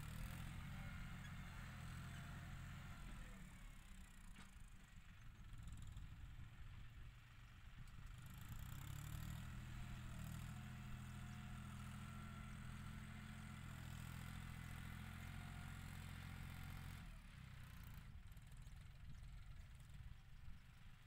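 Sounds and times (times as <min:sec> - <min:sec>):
distant tractor diesel engine: 0:00.0 - 0:06.7.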